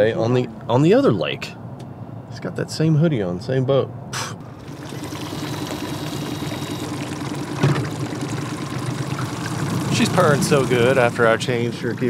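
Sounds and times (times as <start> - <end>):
outboard motor running: 4.4 - 12.0
water rushing along hull: 4.4 - 12.0.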